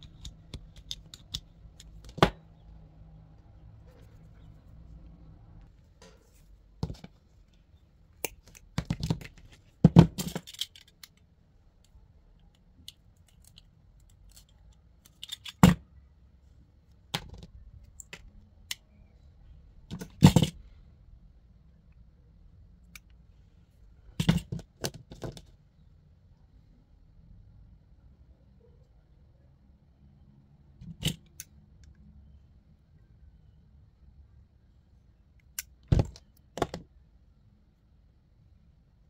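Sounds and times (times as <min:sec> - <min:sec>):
clicks and knocks of small tools: 0:00.0 - 0:02.3, 0:08.2 - 0:15.8.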